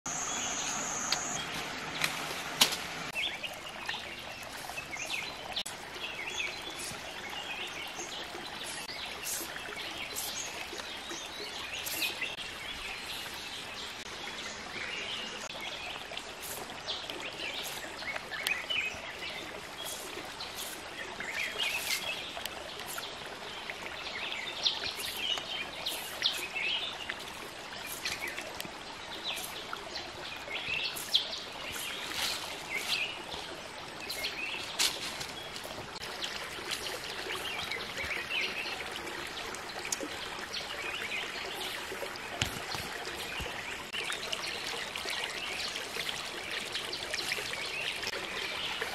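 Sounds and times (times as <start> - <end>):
birds chirping: 0.0 - 10.6, 30.4 - 45.8
outdoor hiss: 0.1 - 3.2.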